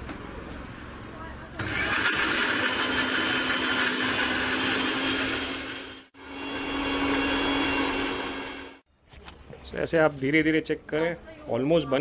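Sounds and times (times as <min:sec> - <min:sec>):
mixer grinder motor whine: 0:01.6 - 0:08.8.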